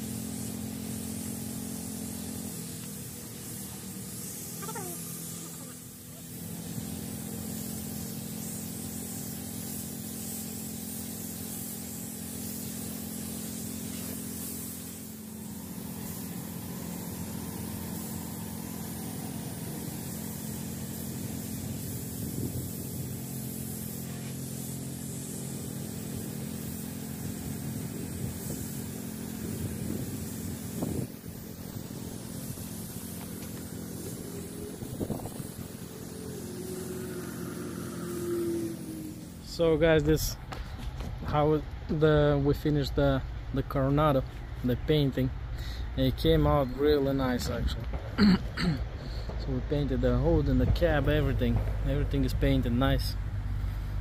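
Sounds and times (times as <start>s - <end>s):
paint spray gun hissing: 0.0s - 41.4s, 43.7s - 54.0s
motor humming: 30.7s - 39.7s.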